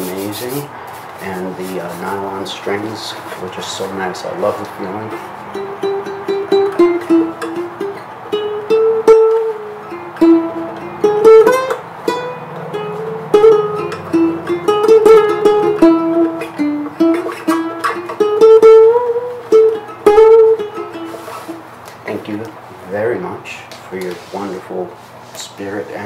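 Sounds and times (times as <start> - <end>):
ukulele playing: 4.8 - 21.8.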